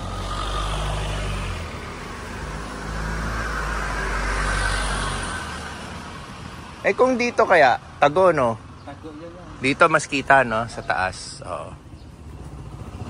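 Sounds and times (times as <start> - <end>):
vehicles passing on road: 0.0 - 13.0.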